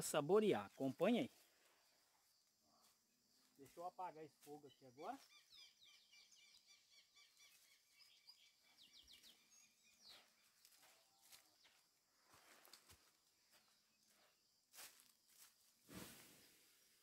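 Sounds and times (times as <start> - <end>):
small bird chirps: 4.5 - 11.8.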